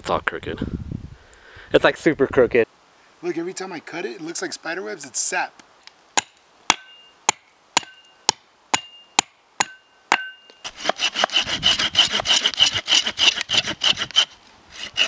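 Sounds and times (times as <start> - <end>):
hand saw cutting branch: 10.6 - 15.0.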